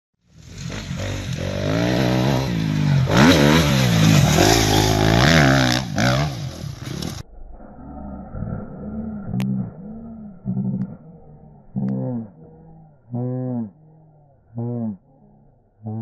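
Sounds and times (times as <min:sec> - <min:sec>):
dirt bike engine revving: 0:00.3 - 0:07.2.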